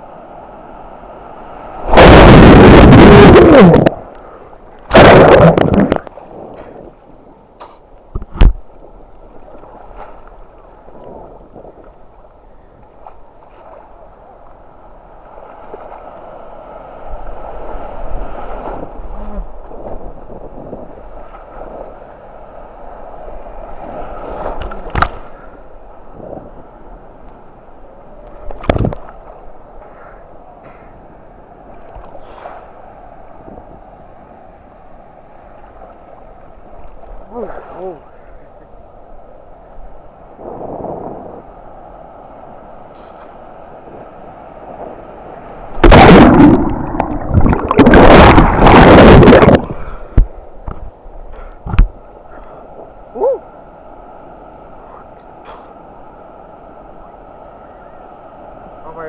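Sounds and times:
water sloshing and gurgling: 1.4s - 16.4s, 23.2s - 26.7s, 28.2s - 30.0s, 42.8s - 53.2s.

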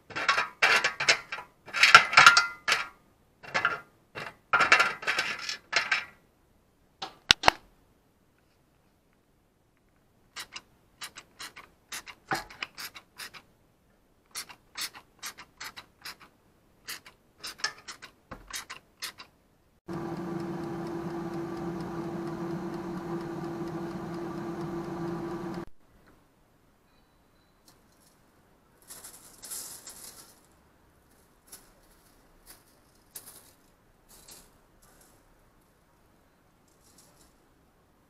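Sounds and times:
air fryer fan humming: 19.9s - 25.7s.

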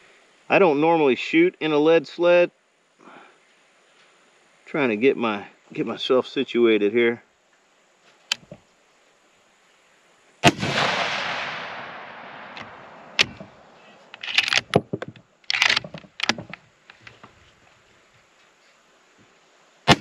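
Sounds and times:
rifle shot: 10.4s - 14.7s
rifle bolt clicking and clacking: 12.5s - 17.1s.

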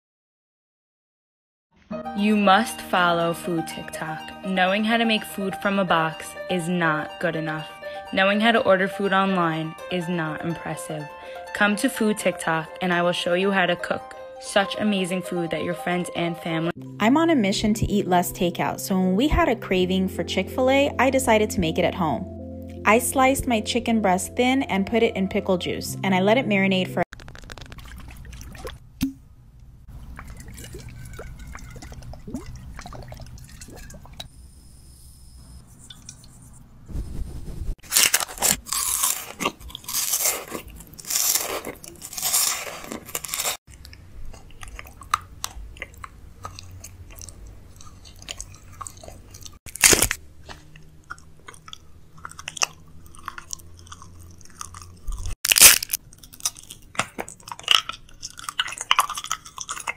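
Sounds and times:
crunching and chewing: 27.1s - 28.8s, 29.9s - 33.9s, 37.9s - 59.9s.

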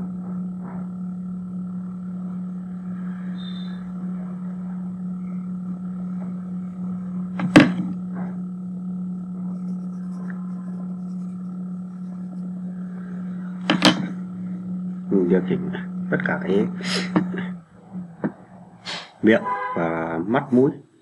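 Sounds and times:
steady low hum: 0.0s - 21.0s
sharp knock: 7.4s - 7.9s.

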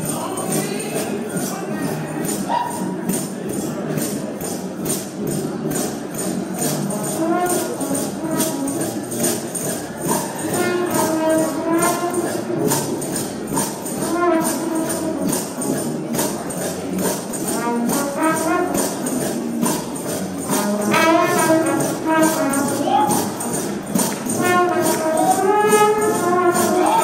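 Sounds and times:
tambourine beat: 0.0s - 27.0s
brass horns playing a melody: 6.9s - 16.2s, 17.0s - 19.8s, 20.4s - 27.0s.

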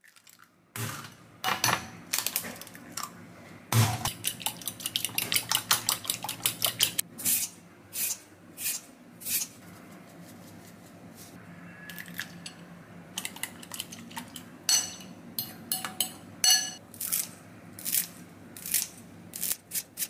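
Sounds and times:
spoon beating eggs in glass bowl: 4.1s - 7.0s, 13.2s - 16.8s.

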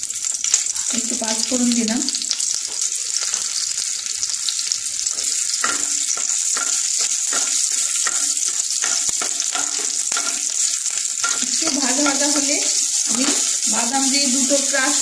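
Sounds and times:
seeds sizzling and crackling in oil: 0.0s - 15.0s
wooden spatula stirring in pan: 5.0s - 15.0s.

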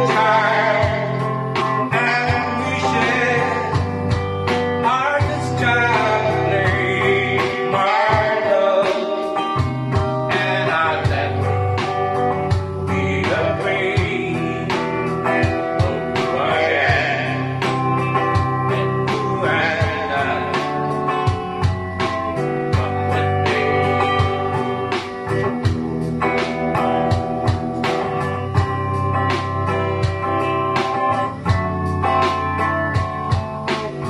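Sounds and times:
man singing a slow ballad: 0.0s - 21.4s, 22.5s - 24.8s
guitar chords strummed: 0.0s - 34.0s.

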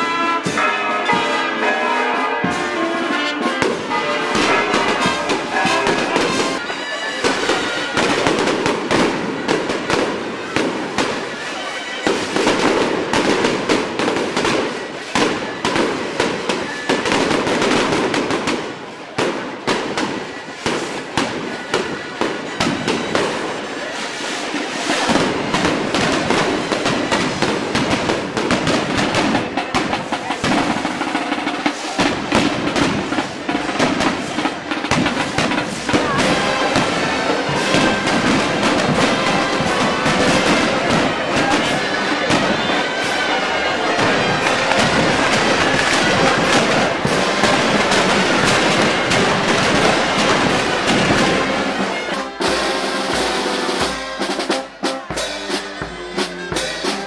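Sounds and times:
firecracker bangs: 0.0s - 57.0s
reedy shawm melody: 0.0s - 57.0s
street music: 0.0s - 57.0s.

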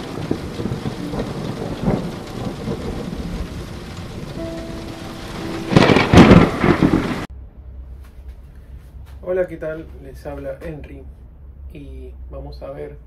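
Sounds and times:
loud thunder clap: 0.0s - 7.3s
rumbling thunder: 0.0s - 7.3s
steady rain: 0.0s - 7.3s.

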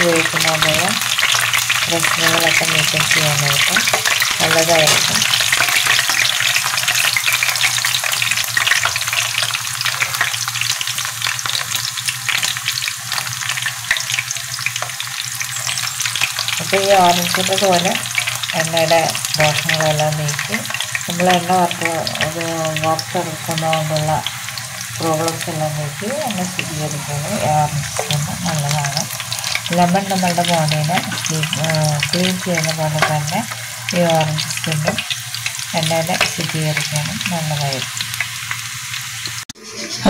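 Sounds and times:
fritters sizzling in hot oil: 0.0s - 40.0s.

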